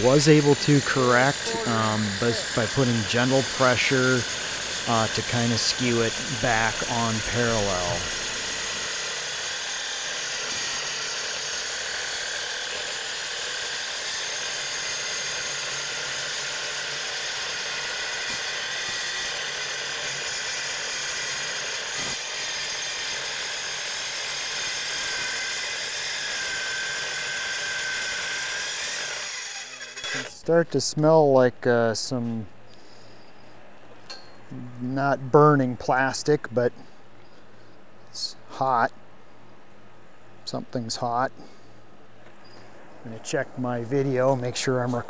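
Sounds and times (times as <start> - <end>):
circular saw cutting steel: 0.0 - 30.5.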